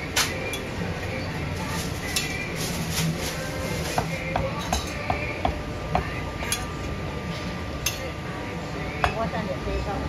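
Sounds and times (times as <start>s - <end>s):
metal utensils clinking on pots: 7.8s - 8.1s.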